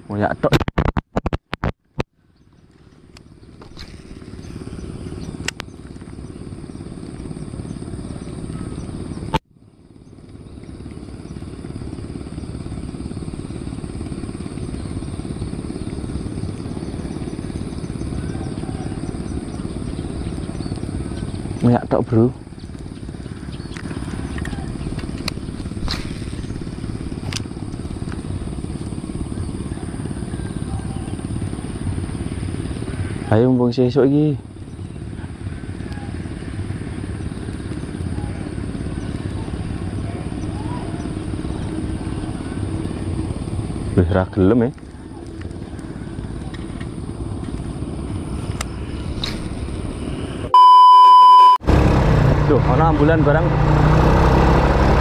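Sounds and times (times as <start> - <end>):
low steady rumble: 2.2 - 55.0
motorcycle engine running: 2.4 - 50.6, 51.6 - 55.0
censor bleep: 50.5 - 51.7.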